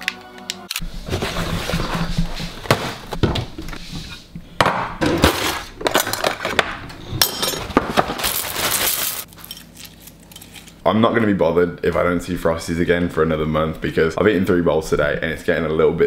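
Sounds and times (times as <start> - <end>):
metal utensils rattling: 5.3 - 6.6, 7.2 - 10.7.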